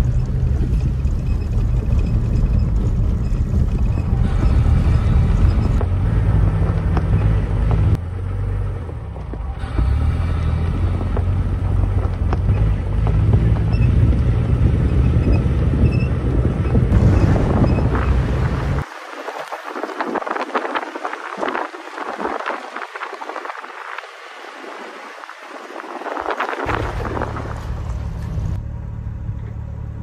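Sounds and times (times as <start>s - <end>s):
vehicle driving on dirt road: 0.0s - 30.0s
thin crackly noise: 17.8s - 28.6s.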